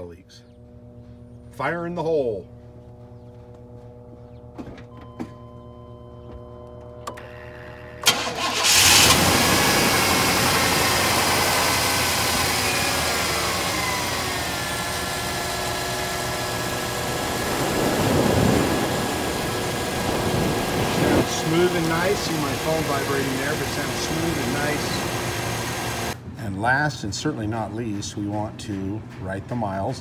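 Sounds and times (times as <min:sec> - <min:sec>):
engine cranking and idling: 0:04.5 - 0:26.2.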